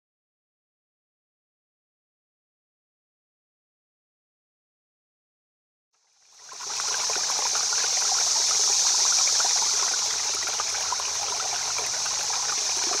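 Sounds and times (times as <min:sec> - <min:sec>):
water trickling: 0:06.2 - 0:13.0.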